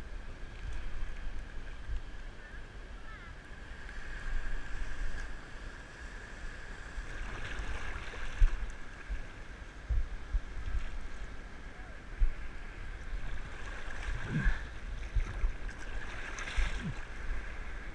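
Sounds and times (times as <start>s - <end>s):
surf sloshing around legs: 6.8s - 17.9s.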